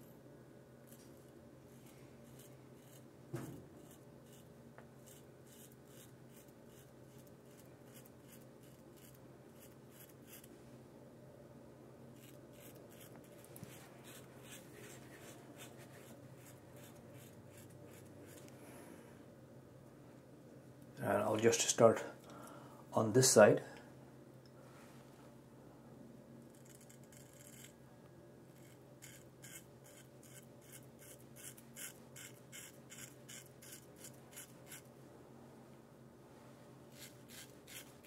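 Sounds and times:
razor scraping stubble: 1.8 - 10.5, 12.2 - 18.5, 26.5 - 27.8, 28.6 - 34.9, 36.9 - 38.0.

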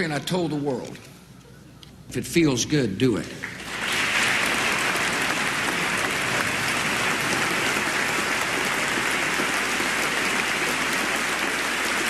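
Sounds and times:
audience applause: 3.4 - 12.0.

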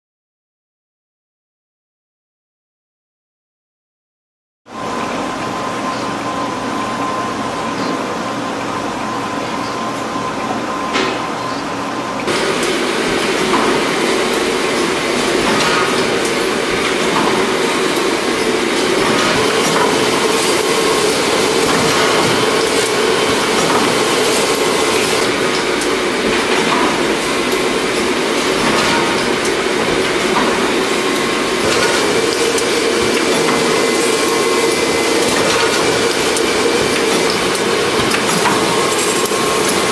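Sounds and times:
constant machine hum: 4.7 - 39.9
folding machine clattering: 12.3 - 39.9.

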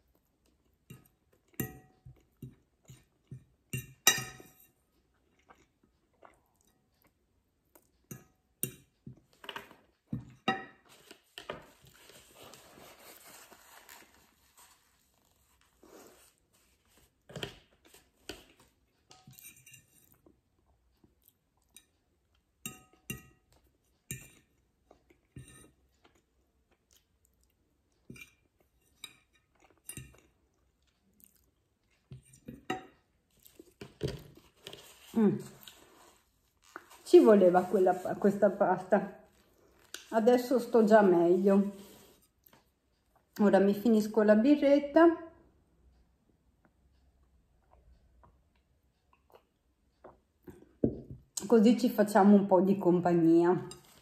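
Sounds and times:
person chewing spaghetti: 4.8 - 8.1, 20.0 - 22.6, 23.5 - 37.0, 47.2 - 50.8
napkin rustling: 10.9 - 17.1, 34.5 - 38.6.

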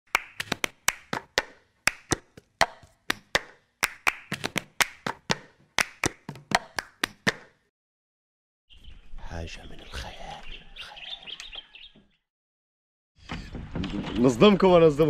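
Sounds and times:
sharp claps or taps: 0.1 - 7.6.

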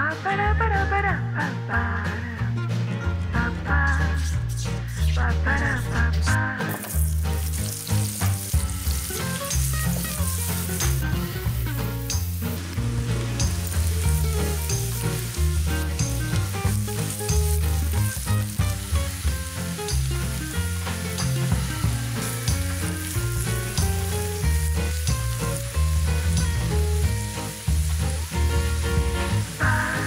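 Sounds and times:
background music with beat: 0.0 - 30.0
vegetables sizzling in oil: 6.6 - 30.0.

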